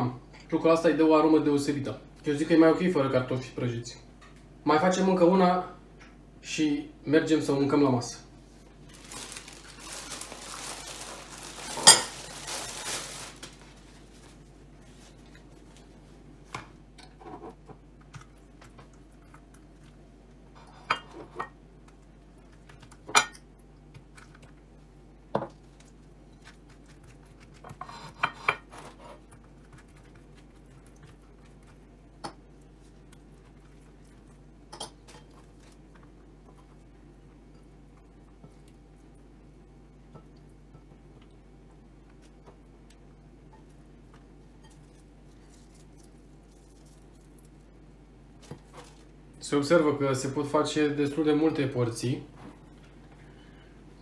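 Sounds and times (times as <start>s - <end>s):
rustling handling noise: 8.4s - 16.8s, 43.6s - 49.2s.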